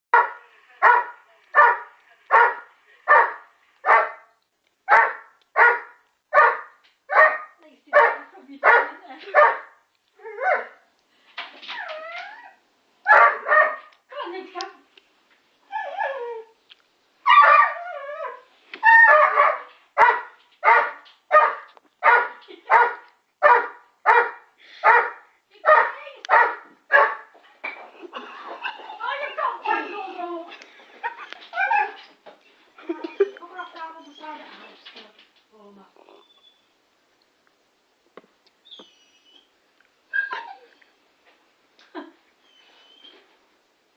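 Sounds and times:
dog barking: 0.1 - 4.3, 4.9 - 9.7, 13.1 - 14.0, 19.0 - 27.3
dog whining: 11.7 - 12.6, 31.5 - 32.1, 38.6 - 41.0, 42.4 - 43.3.

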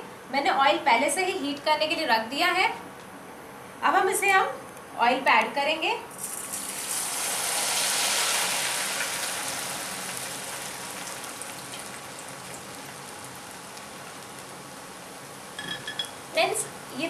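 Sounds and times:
noodles deep-frying in hot oil: 6.1 - 17.0.

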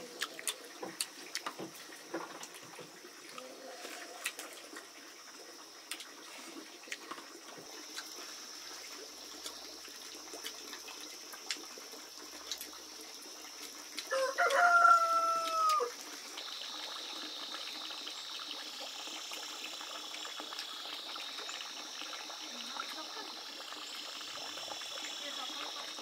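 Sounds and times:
rooster crowing: 14.1 - 15.9.

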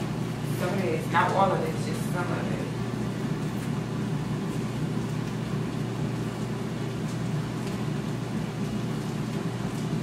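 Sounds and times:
appliance humming: 0.0 - 10.0.

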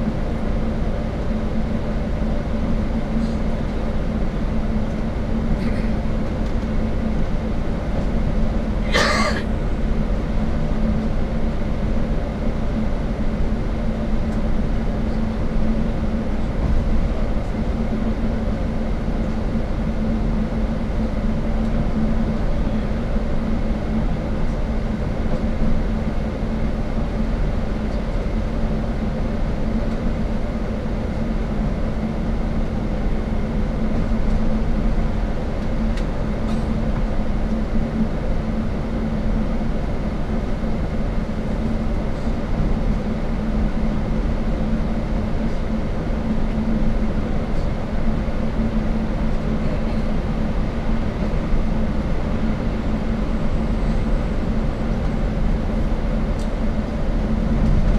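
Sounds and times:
bus engine hum: 0.0 - 57.9
road rumble: 53.3 - 57.9.

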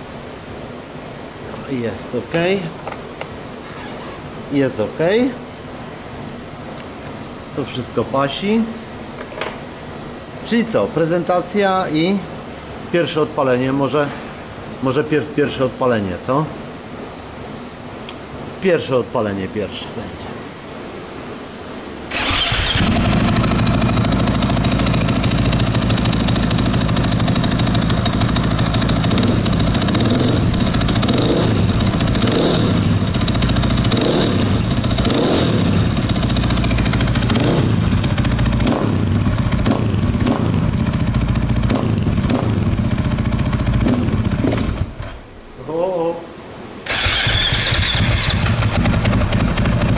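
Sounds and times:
motorcycle engine idling and revving: 22.1 - 45.2, 46.9 - 49.9.

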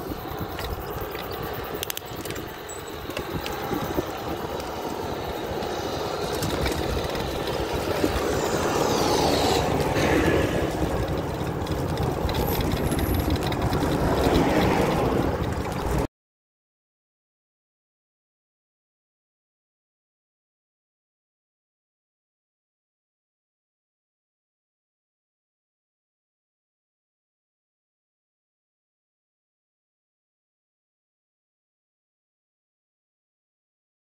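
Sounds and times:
traffic rumble: 0.0 - 16.1
vehicle whine passing by: 0.0 - 16.1.

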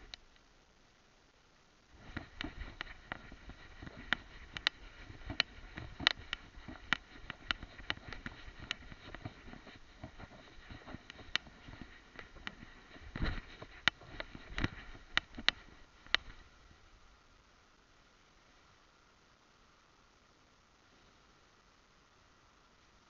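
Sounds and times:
camera handling rustling: 2.0 - 16.4
sharp clicks and knocks: 2.0 - 16.4.

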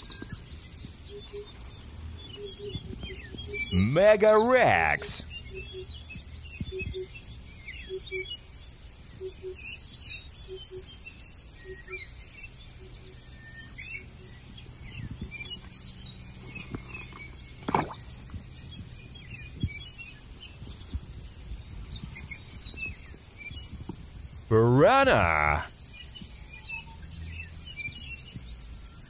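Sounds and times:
small birds chirping: 0.0 - 3.8, 5.2 - 24.5.

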